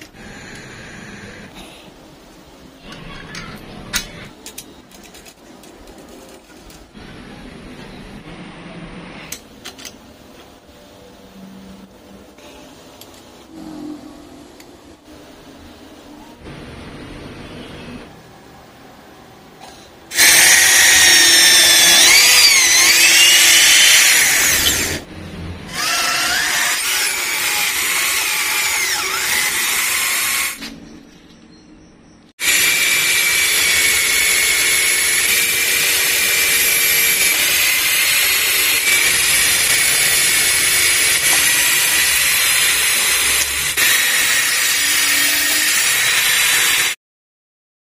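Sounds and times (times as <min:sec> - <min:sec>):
electric drill whining: 0:20.1 - 0:25.0, 0:25.7 - 0:30.6, 0:32.4 - 0:47.0.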